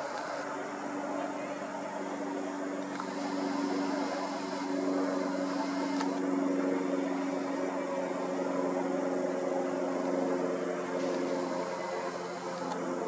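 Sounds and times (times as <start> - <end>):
hiss: 0.0 - 0.4, 3.0 - 6.2, 11.0 - 12.7
steady engine-like drone: 0.0 - 13.0.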